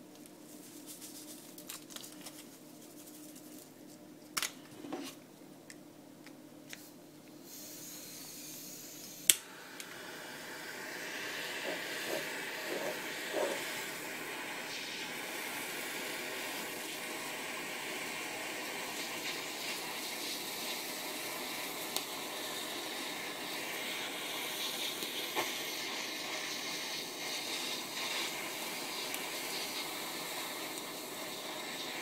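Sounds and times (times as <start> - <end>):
blowtorch flame hissing: 7.4 - 32.0.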